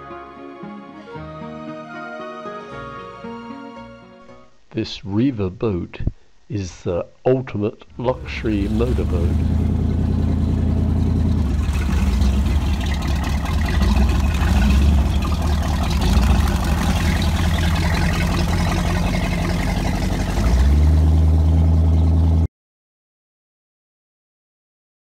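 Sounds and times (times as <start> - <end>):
motorboat engine running: 8.1 - 22.5.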